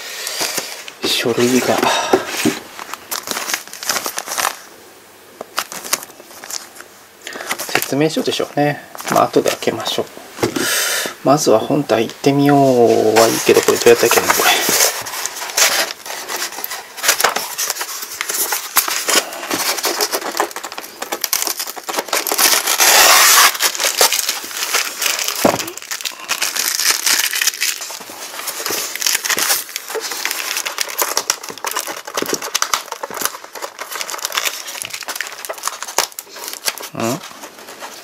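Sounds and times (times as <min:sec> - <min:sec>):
plastic wrapping crinkling: 0:00.2 - 0:04.7, 0:05.4 - 0:10.6, 0:11.3 - 0:38.0.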